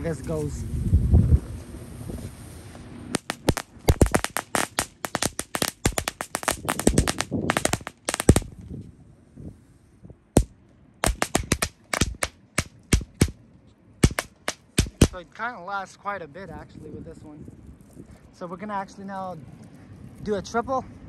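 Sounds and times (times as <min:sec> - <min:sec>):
firework crackling pops: 0:03.1 - 0:08.6, 0:10.4 - 0:13.4, 0:14.0 - 0:15.2.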